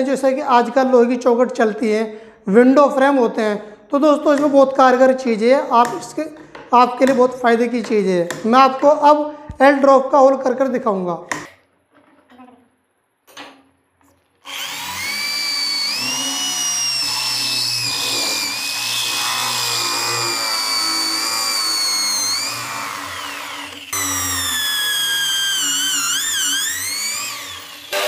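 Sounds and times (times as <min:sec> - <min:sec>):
drill bit grinding on steel: 0:14.4 - 0:28.0
electric drill whining: 0:14.4 - 0:28.0.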